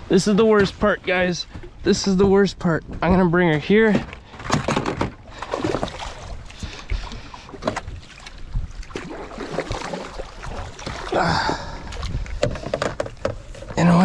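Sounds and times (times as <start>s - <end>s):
water splashing against boat: 3.9s - 14.0s
wind rumble on microphone: 6.2s - 9.0s, 10.3s - 14.0s.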